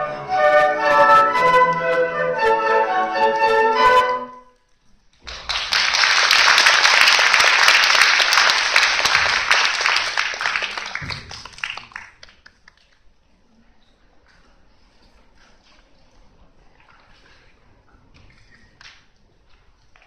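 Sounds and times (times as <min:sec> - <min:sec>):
audience applauding: 0:05.2 - 0:12.9.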